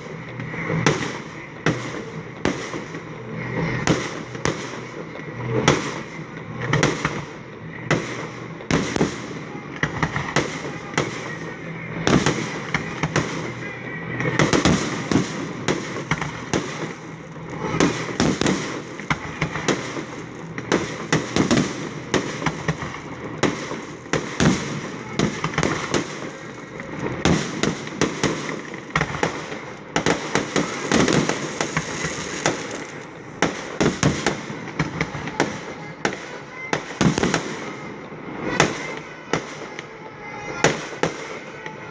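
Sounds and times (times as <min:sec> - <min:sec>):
fireworks crackle and rumble: 0:00.0 - 0:41.9
firework shells bursting: 0:30.0 - 0:35.8.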